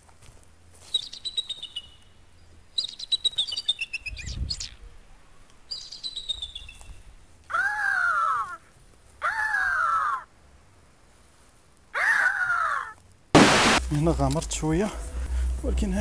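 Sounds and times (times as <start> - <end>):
birds chirping: 0.9 - 8.6.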